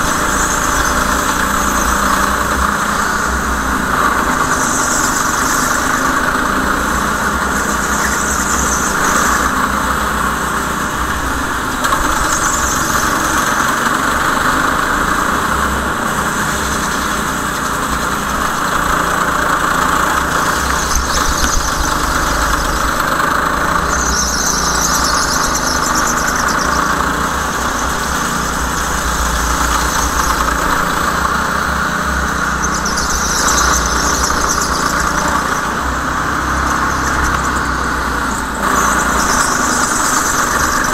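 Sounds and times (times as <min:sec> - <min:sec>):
go-kart engine running: 0:00.0 - 0:40.9
tyres squealing: 0:15.6 - 0:40.9.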